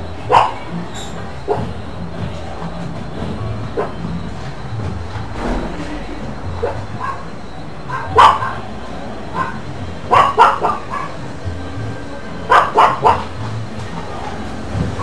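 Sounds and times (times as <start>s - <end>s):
dog barking: 0.2s - 0.7s, 1.4s - 1.8s, 3.8s - 4.0s, 6.6s - 7.3s, 7.9s - 8.6s, 9.3s - 11.2s, 12.5s - 13.4s.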